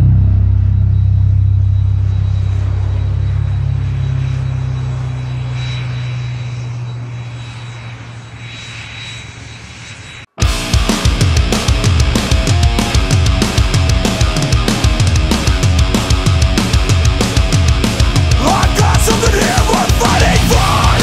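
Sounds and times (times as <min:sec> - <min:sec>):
low droning chord: 0:00.0 - 0:08.5
loud heavy music track: 0:10.4 - 0:21.0.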